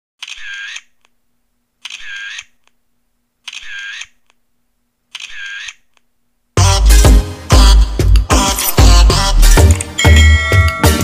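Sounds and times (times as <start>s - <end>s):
camera shutter snap: 0.2s - 0.9s, 1.8s - 2.5s, 3.5s - 4.2s, 5.1s - 5.8s.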